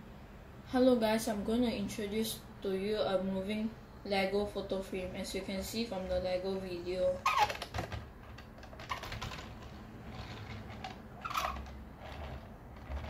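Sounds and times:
plastic toy clicking and rattling: 0:07.3 - 0:13.0.

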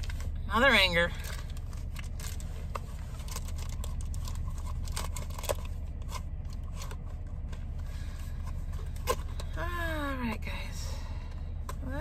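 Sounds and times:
low hum inside a car: 0:00.0 - 0:12.0
plastic packaging rustling: 0:01.2 - 0:07.2.

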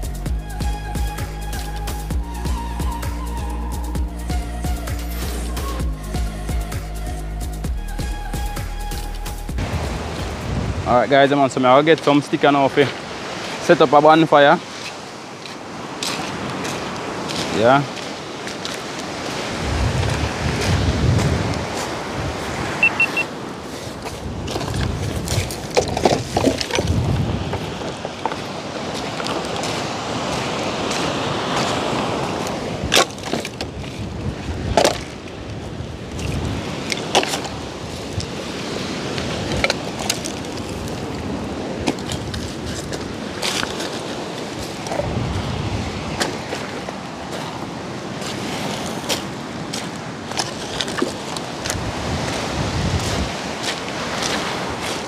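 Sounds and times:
wind rumbling on microphone: 0:09.5 - 0:12.3, 0:14.6 - 0:55.0
surf on pebble beach: 0:09.6 - 0:55.0
driftwood knocking together: 0:24.5 - 0:29.6.

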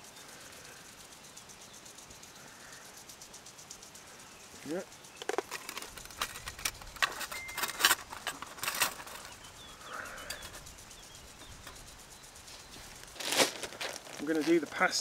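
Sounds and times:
faint bird chirps: 0:09.0 - 0:13.2.

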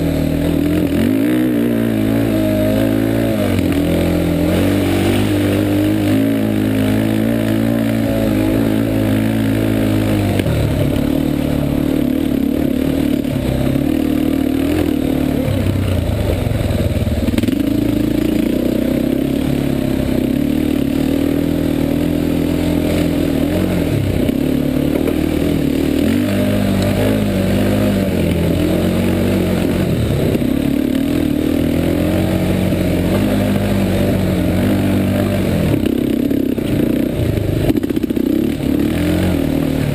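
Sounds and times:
quad bike engine revving: 0:00.0 - 0:39.9.

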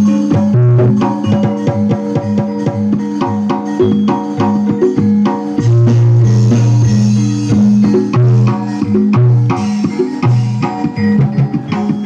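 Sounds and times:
heavy bass notes: 0:00.0 - 0:12.0
steady percussion: 0:00.0 - 0:12.0.

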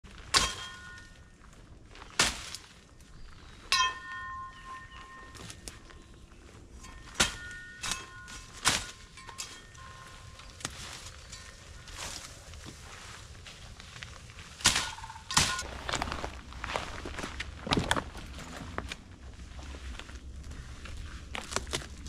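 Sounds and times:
machete chopping brush: 0:02.2 - 0:02.7, 0:07.1 - 0:09.0, 0:14.6 - 0:15.7
metallic ring of blade: 0:03.7 - 0:05.6, 0:06.8 - 0:12.2.

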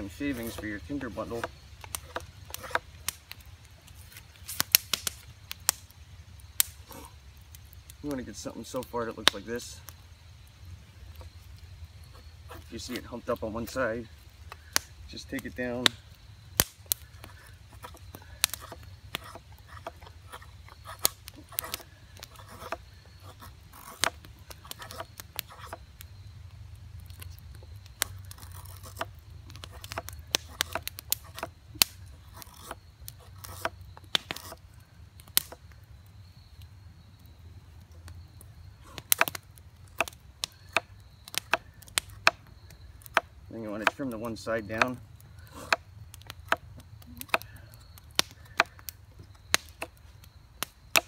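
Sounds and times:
knife carving wood: 0:00.0 - 0:05.9, 0:12.0 - 0:16.0, 0:16.6 - 0:25.9, 0:27.0 - 0:35.6, 0:38.8 - 0:51.0.

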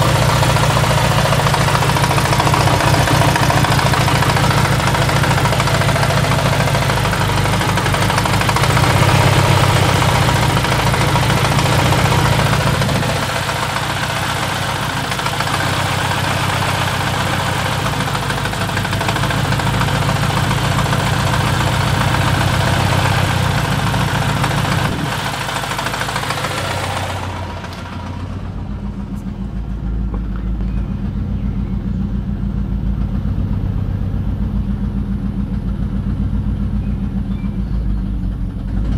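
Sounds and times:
car engine idling: 0:00.0 - 0:38.9.

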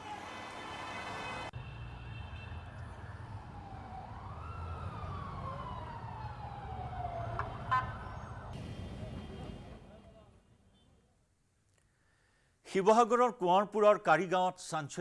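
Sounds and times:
street traffic rumble: 0:00.0 - 0:11.1
emergency siren wailing: 0:01.5 - 0:09.5.

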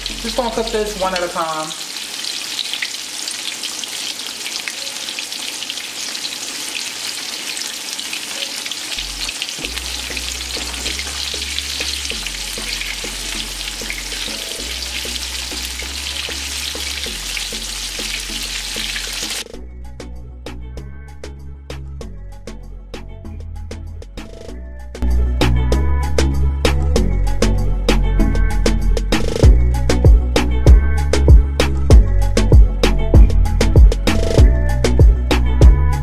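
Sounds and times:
pork chop frying in oil: 0:00.0 - 0:19.4.

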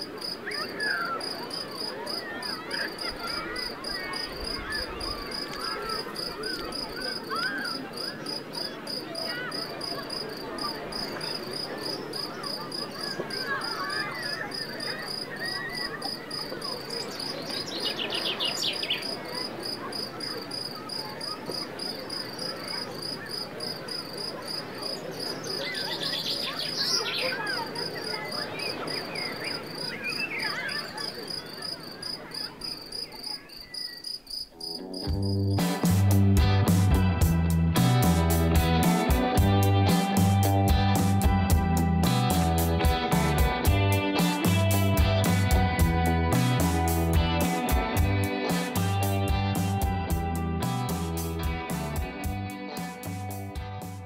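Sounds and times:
crickets trilling: 0:00.0 - 0:35.6
small birds chirping: 0:00.0 - 0:35.6.

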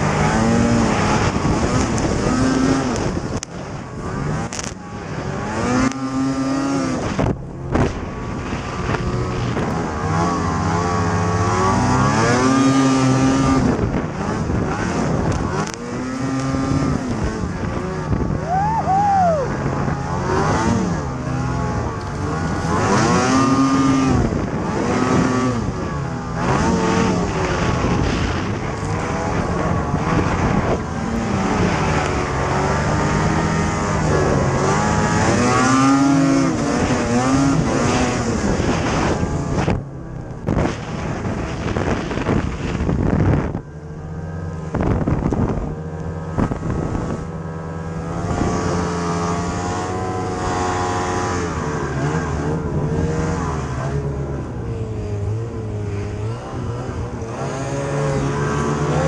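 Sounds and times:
snowmobile engine revving: 0:00.0 - 0:59.0.

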